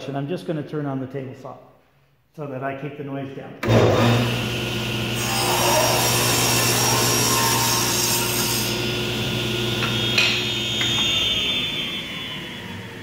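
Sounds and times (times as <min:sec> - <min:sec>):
table saw ripping a board: 0:03.6 - 0:11.7
saw blade spinning with motor hum: 0:03.7 - 0:13.0.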